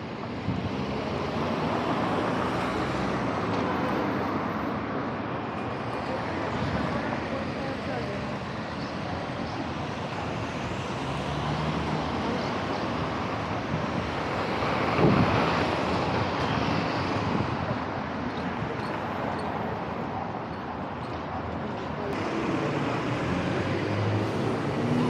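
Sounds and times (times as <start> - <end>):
cars driving by: 0.0 - 25.0
steady road hiss: 0.0 - 25.0
car passing close: 22.1 - 25.0.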